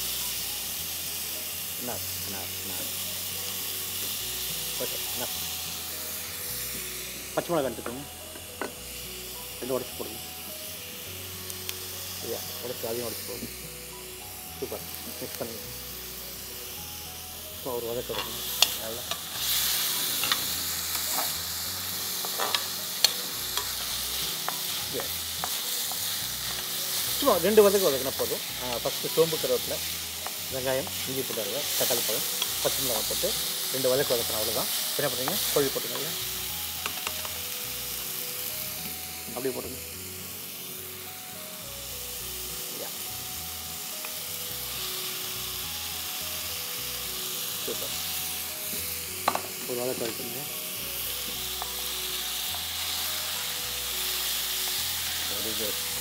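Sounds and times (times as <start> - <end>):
soft background music: 0.0 - 56.0
vegetables sizzling in hot oil: 0.0 - 56.0
ladle stirring and scraping pan: 18.0 - 33.7.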